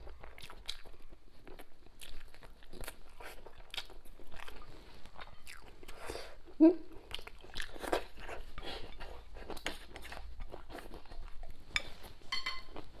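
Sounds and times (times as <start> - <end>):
chopsticks clinking on bowl: 11.7 - 12.8.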